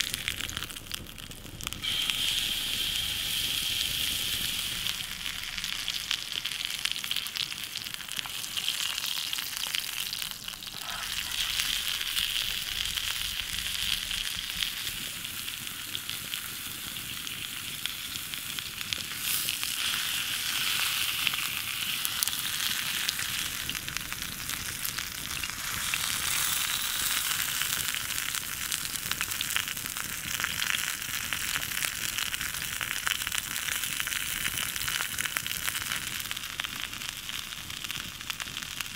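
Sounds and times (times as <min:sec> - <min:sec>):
steak sizzling in skillet: 0:00.0 - 0:38.9.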